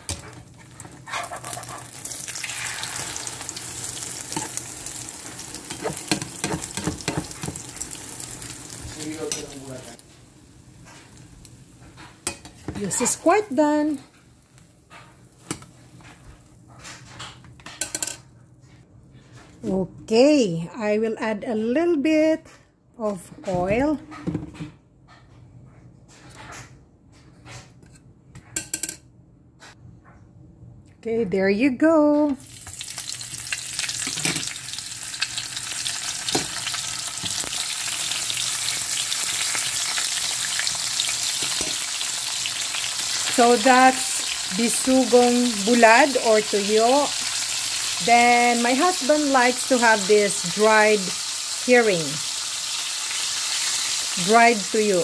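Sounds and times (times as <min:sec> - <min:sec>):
low kitchen background: 0:00.0 - 0:55.0
fish sizzling in hot oil: 0:01.3 - 0:10.0, 0:32.4 - 0:55.0.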